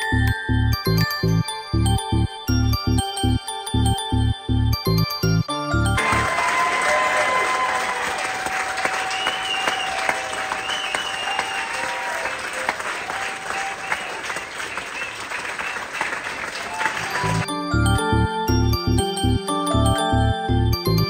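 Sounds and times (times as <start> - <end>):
audience applauding: 6.0 - 17.5.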